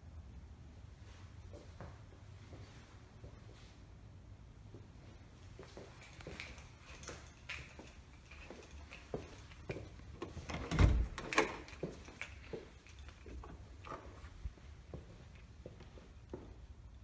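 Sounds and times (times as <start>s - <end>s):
latch and handle clicks: 10.2s - 14.1s.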